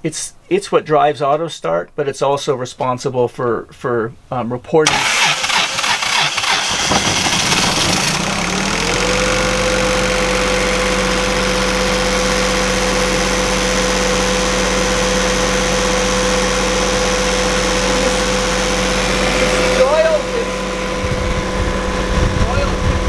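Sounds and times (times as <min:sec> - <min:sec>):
diesel generator cranking and running: 0:04.9 - 0:23.0.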